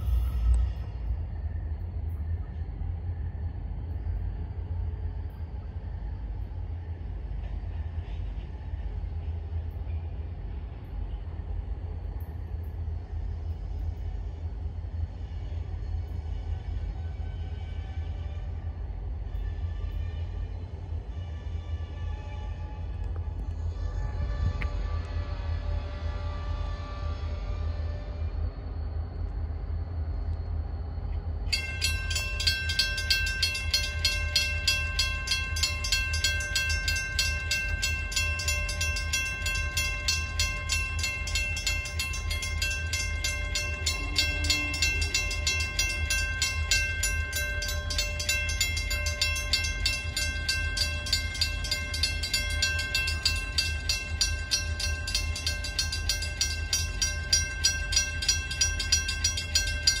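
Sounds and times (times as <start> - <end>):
railroad crossing bell ringing: 0.0 - 0.9, 31.5 - 60.0
low steady rumble: 28.5 - 60.0.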